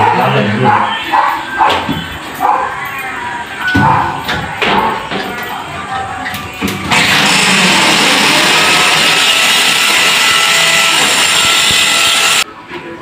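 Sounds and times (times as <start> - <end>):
power drill running: 6.9 - 12.4.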